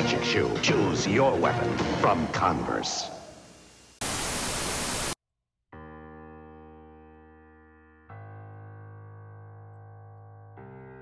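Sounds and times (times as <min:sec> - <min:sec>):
tv static burst: 0:04.0 - 0:05.2.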